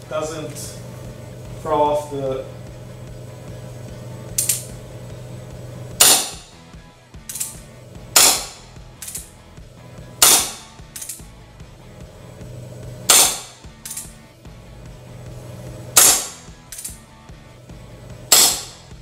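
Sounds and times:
revolver hammer clicks: 4.4 - 4.7, 7.2 - 9.4, 10.2 - 11.3, 13.1 - 14.2, 16.0 - 17.0, 18.3 - 18.9
gas gun shot with hiss: 6.0 - 6.6, 7.3 - 9.3, 10.2 - 11.2, 13.1 - 14.1, 15.9 - 16.5, 18.3 - 19.0.

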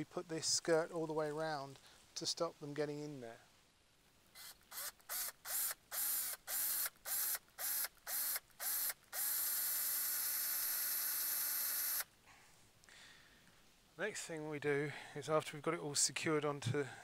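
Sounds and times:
cordless drill boring into wood: 4.4 - 12.1.

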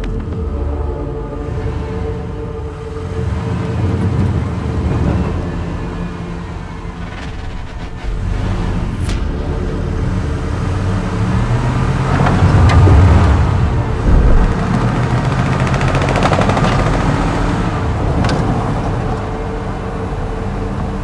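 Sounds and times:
sharp knocks and rattle: 12.1 - 17.5.

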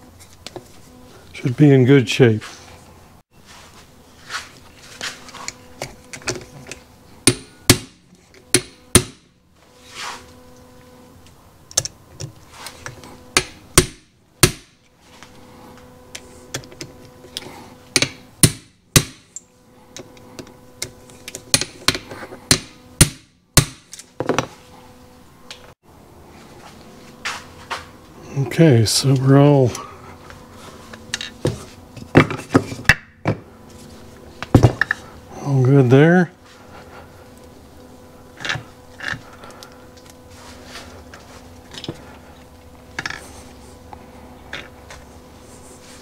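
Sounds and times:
hammer striking impact driver: 7.2 - 9.3, 17.9 - 19.3.

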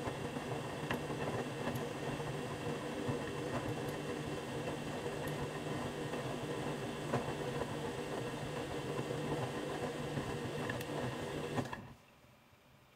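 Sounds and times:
washing machine motor hum: 0.0 - 12.0.

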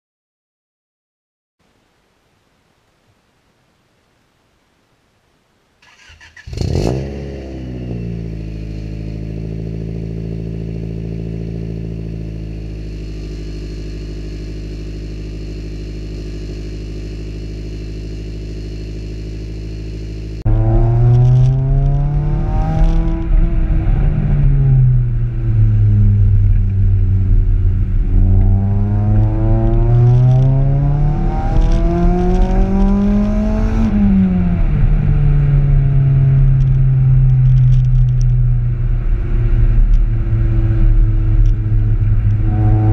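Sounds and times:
car engine revving while driving: 6.4 - 42.9
car engine idling: 8.2 - 30.2, 34.3 - 42.9.

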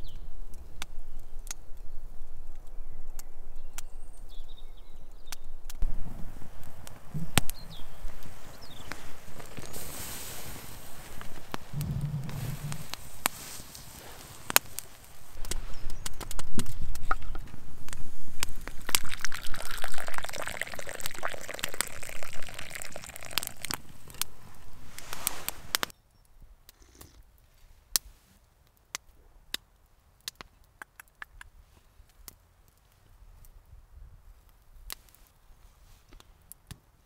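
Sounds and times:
wood fire crackling: 5.2 - 26.0
tea pouring into cup: 18.4 - 25.8.

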